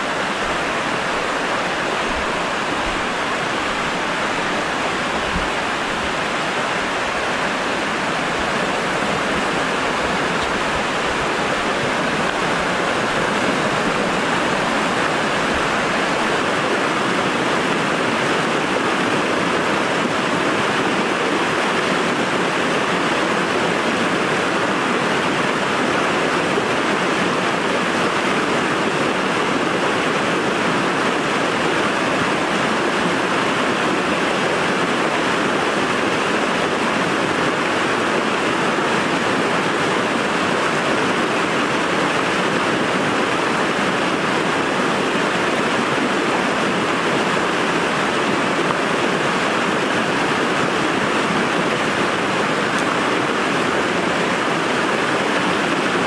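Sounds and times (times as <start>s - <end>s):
river water rushing: 0.0s - 56.0s.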